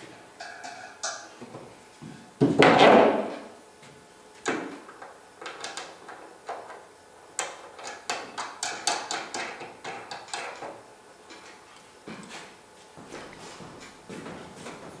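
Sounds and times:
wing nuts clicking and knocking: 7.4 - 11.6.

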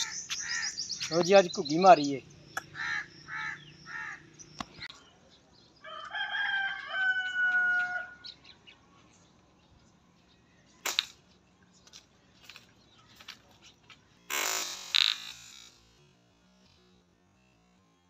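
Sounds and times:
rooster crowing: 5.8 - 8.3
sharp snap: 10.8 - 11.2.

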